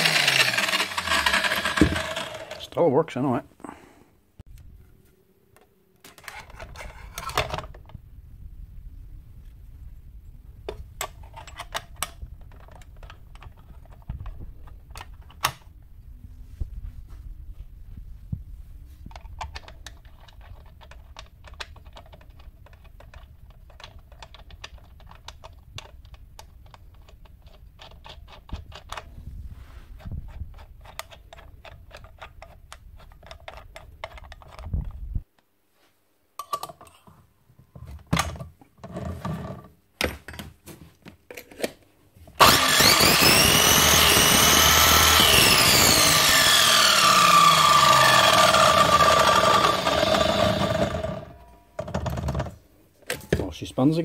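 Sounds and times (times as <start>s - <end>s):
saw motor whining: 0.0s - 2.7s, 42.4s - 51.4s.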